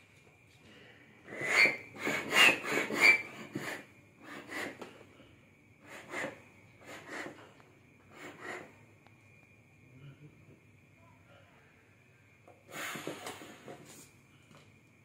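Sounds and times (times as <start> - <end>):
foot pump pushing air: 1.3 - 5.0, 5.8 - 8.8, 12.6 - 14.1.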